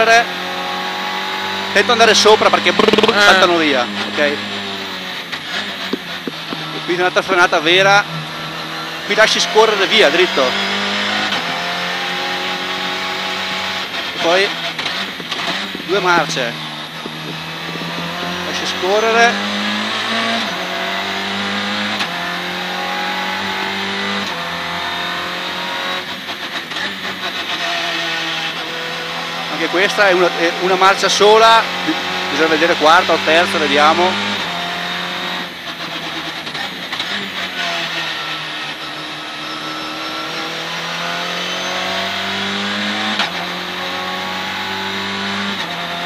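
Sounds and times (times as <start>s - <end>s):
rally car engine at high revs: 0.0s - 46.0s
gear shift click: 2.7s - 3.2s, 5.2s - 6.9s, 13.9s - 18.5s.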